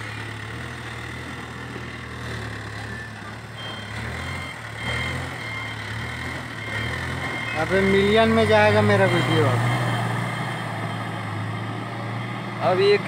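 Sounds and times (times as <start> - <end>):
diesel engine running under load: 0.0 - 13.0.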